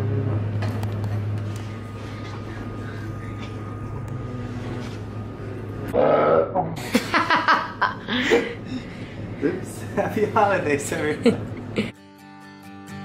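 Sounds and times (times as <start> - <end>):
low steady hum: 0.0 - 11.9.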